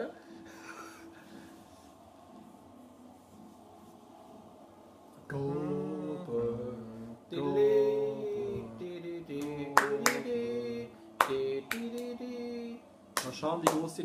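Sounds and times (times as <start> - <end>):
people singing without instruments: 5.2 - 12.9.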